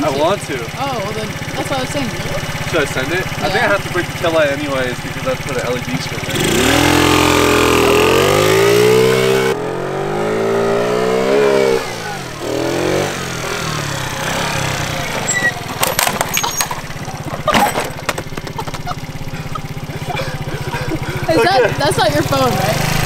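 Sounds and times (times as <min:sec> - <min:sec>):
scooter knocking and scraping pavement: 0:00.0 - 0:07.6, 0:12.2 - 0:23.0
moped engine revving: 0:00.0 - 0:23.0.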